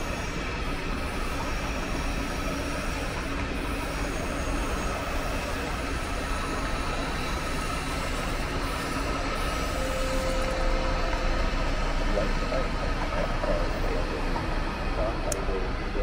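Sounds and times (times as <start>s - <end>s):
train rumbling on tracks: 0.0s - 16.0s
faint high tone: 9.7s - 12.3s.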